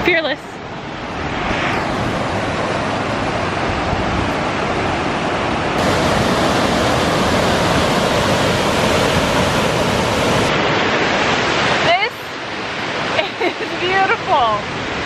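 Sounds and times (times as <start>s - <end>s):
waterfall roaring: 1.9s - 15.0s.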